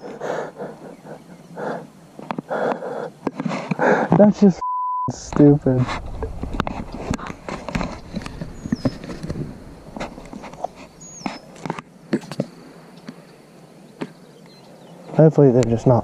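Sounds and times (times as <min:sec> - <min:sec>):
camera rubbing and rustling: 0:03.2 - 0:04.2, 0:05.2 - 0:13.2
footsteps on grass: 0:05.7 - 0:11.6.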